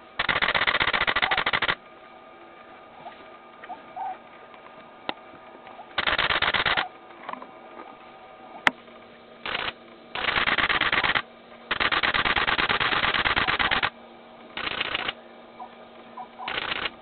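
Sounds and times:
faint steady hum: 0:00.0 - 0:17.0
camera shutter rapid clicks: 0:00.2 - 0:01.8, 0:06.0 - 0:06.9, 0:09.4 - 0:13.9, 0:14.6 - 0:15.2, 0:16.5 - 0:17.0.

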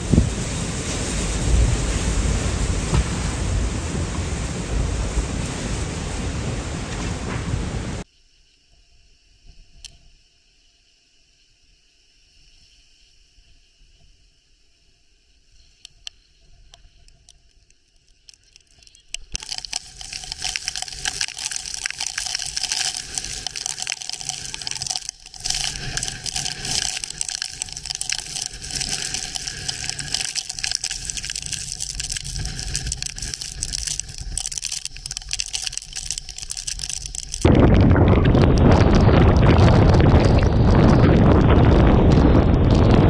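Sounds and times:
driving rain hiss: 0:00.0 - 0:08.0, 0:15.6 - 0:43.0
hurricane wind: 0:00.0 - 0:08.0, 0:19.4 - 0:43.0.

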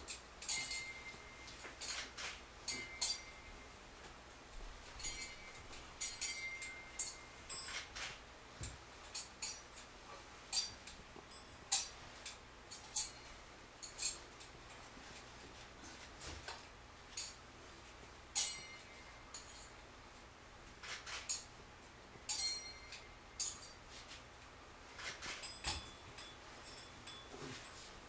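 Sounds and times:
small bell ringing: 0:00.4 - 0:02.0, 0:02.7 - 0:03.7, 0:05.0 - 0:07.8, 0:18.4 - 0:19.7, 0:22.3 - 0:23.8, 0:25.4 - 0:27.8.

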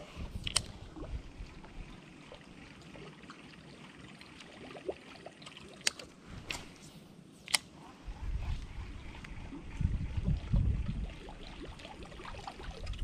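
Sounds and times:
low rumble: 0:08.0 - 0:11.3.

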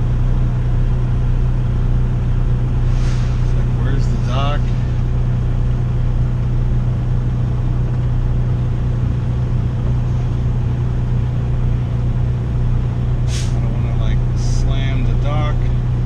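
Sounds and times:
diesel truck engine droning: 0:00.0 - 0:16.0
short air hiss: 0:02.9 - 0:03.5, 0:13.3 - 0:13.6.

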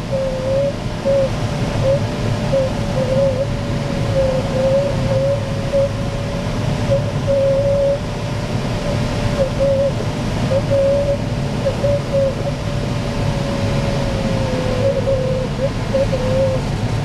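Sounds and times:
airflow noise in glider cockpit: 0:00.0 - 0:17.0.

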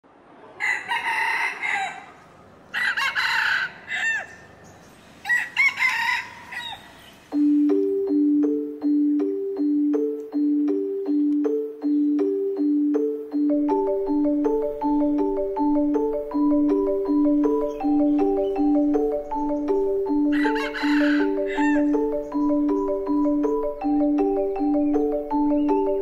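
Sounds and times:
rooster crowing: 0:00.6 - 0:04.6, 0:05.2 - 0:07.1, 0:20.3 - 0:22.1
mallet percussion music: 0:07.3 - 0:26.0.

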